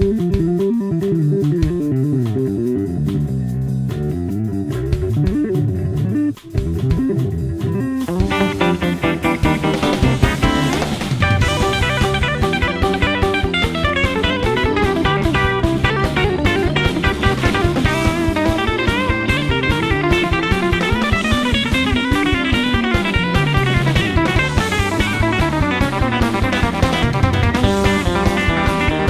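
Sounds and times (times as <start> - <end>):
guitar over drum kit beat: 0.0 - 29.0.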